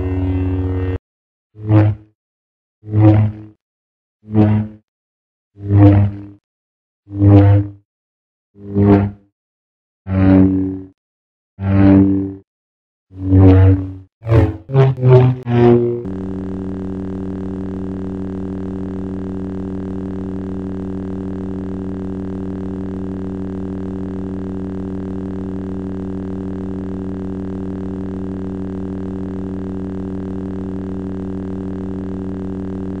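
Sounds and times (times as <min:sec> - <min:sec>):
lightsaber hum: 0:00.0 - 0:01.0, 0:13.2 - 0:33.0.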